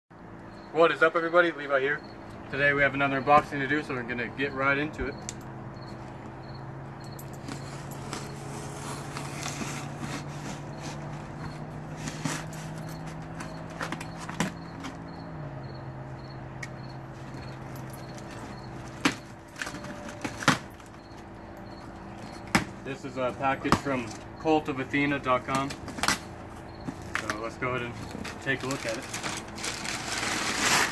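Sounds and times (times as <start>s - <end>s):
packing tape tearing: 7.4s - 14.6s, 28.1s - 30.9s
cardboard scraping and rustling: 7.4s - 15.0s, 25.7s - 30.9s.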